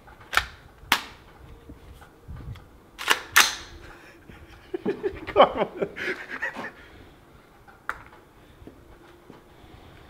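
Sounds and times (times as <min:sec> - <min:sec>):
rifle shots: 0:03.0 - 0:03.8.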